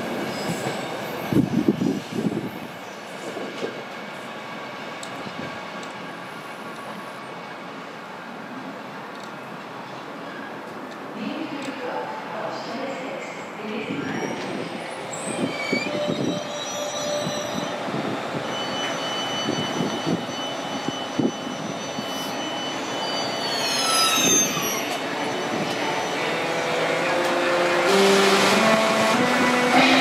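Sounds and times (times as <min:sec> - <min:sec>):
train rumbling: 0:00.0 - 0:30.0
wheel or brake squeals: 0:15.1 - 0:17.8, 0:18.4 - 0:26.2.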